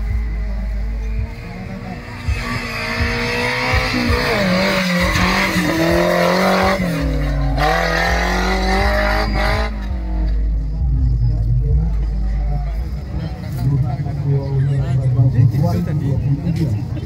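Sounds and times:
car engine revving: 0.0 - 16.9.

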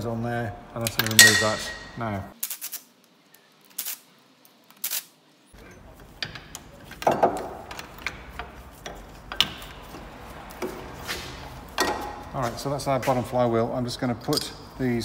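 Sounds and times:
metal clinks and knocks: 1.0 - 2.0, 5.7 - 10.8, 11.7 - 12.3.

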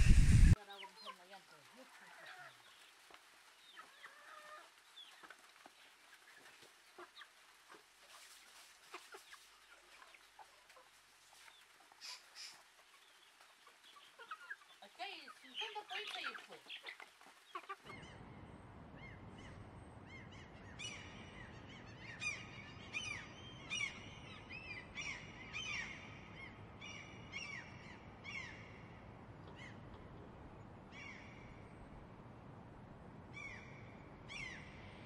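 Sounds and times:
wild birds calling: 0.0 - 35.0
chickens clucking: 3.7 - 18.2.

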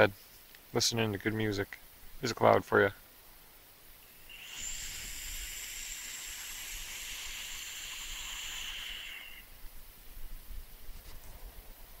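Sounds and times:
thin high whistle: 4.2 - 9.4
electronic cigarette drag hiss: 4.3 - 9.5.

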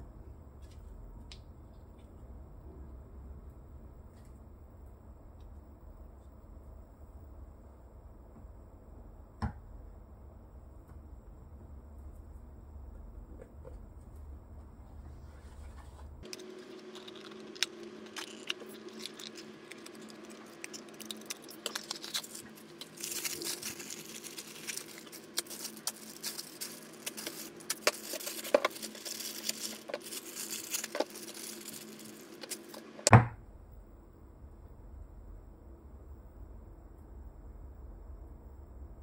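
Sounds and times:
plastic bag crinkling: 16.2 - 33.1.

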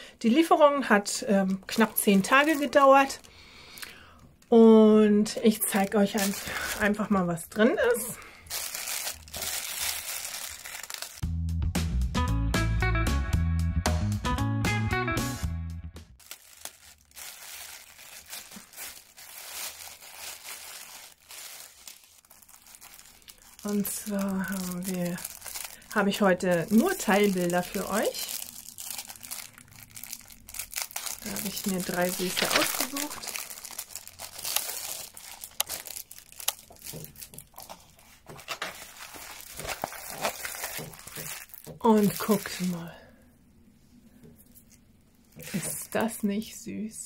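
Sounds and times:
plastic mailer bag crinkling: 1.4 - 3.3, 5.5 - 11.2, 16.2 - 42.8, 44.6 - 46.0.

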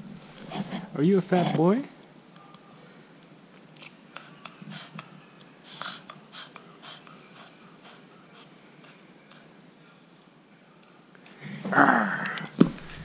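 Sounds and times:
dog snuffling and sniffing: 0.3 - 1.7.

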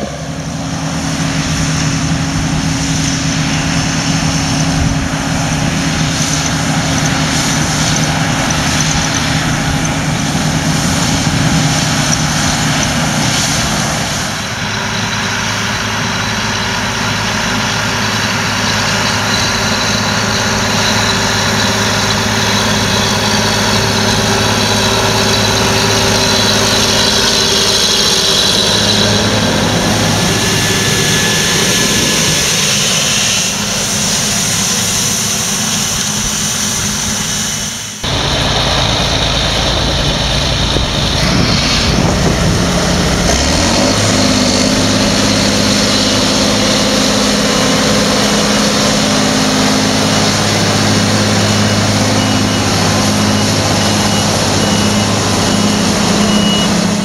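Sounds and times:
diesel tractor engine droning: 0.0 - 57.0.

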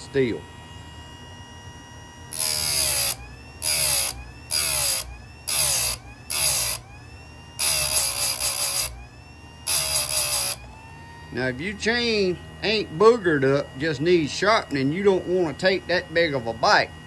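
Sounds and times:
grinding wheel humming: 0.0 - 17.0
grinding wheel on steel chain: 2.3 - 6.8, 7.6 - 8.9, 9.7 - 10.6.

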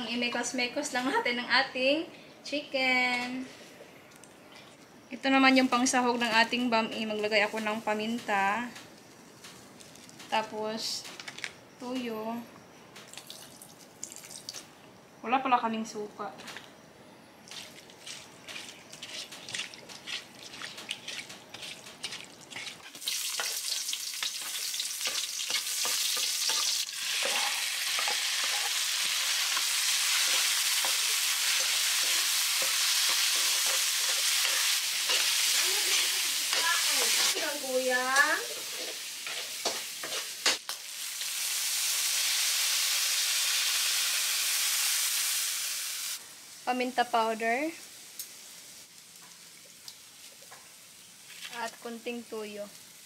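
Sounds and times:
food sizzling in a wok: 5.3 - 10.9, 19.2 - 53.0
spatula scraping a wok: 18.5 - 23.8, 24.4 - 37.6, 38.3 - 40.6.

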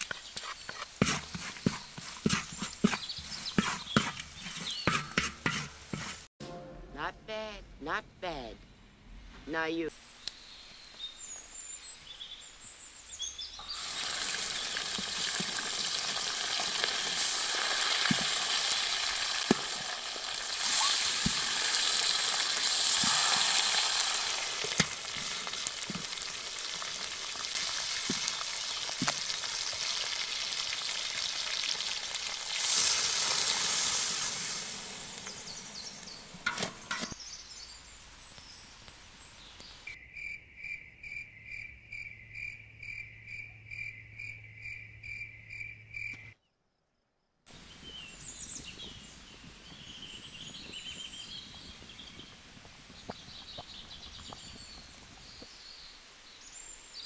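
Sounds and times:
spatula scraping pan: 0.0 - 6.3, 22.7 - 29.7
meat sizzling in hot oil: 13.6 - 36.5.

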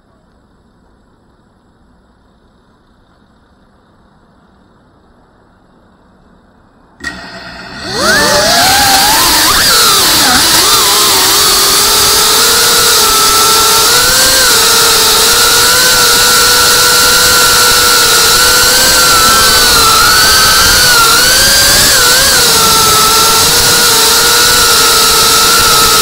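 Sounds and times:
drone propellers whining: 7.0 - 26.0.

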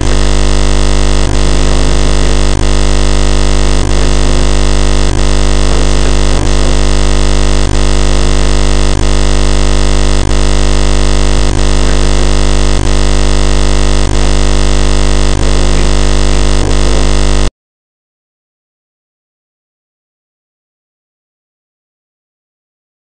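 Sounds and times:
distorted synth drone music: 0.0 - 17.5.

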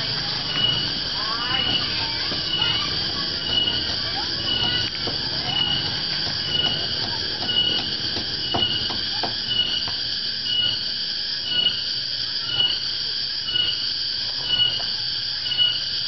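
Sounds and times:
cicadas droning: 0.0 - 16.0.

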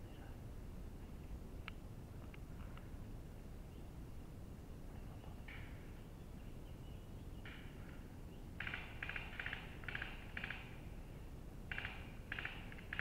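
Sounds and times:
bird rattling calls: 8.6 - 10.8, 11.7 - 13.0.

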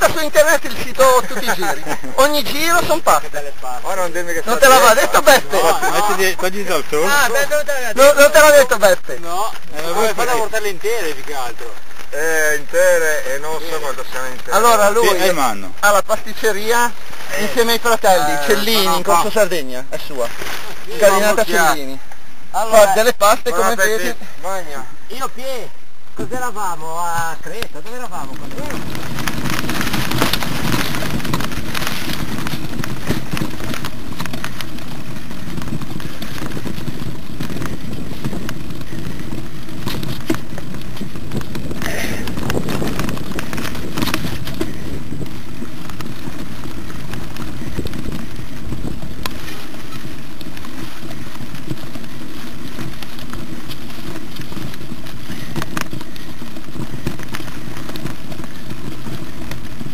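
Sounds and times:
bike tires rushing on dirt: 0.0 - 59.9
bike knocks and rattles: 27.1 - 59.9.

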